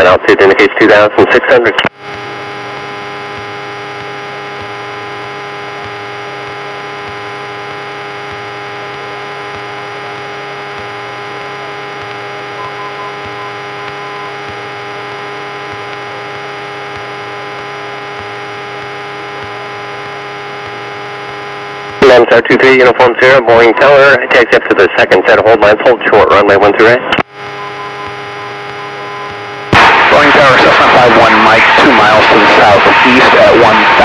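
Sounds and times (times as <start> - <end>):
airplane engine drone: 27.4 - 34.0.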